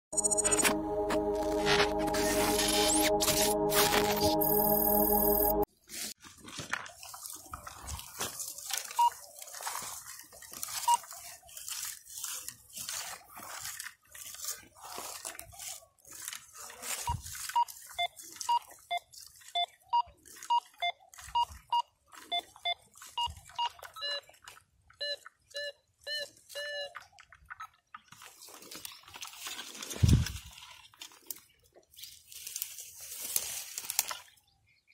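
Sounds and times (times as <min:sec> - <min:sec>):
metal detector beeps: 0:00.2 - 0:00.9, 0:01.7 - 0:05.7, 0:09.0 - 0:09.2, 0:17.0 - 0:24.3, 0:25.0 - 0:26.9
crackle of dry grass: 0:00.4 - 0:24.6, 0:27.0 - 0:34.9.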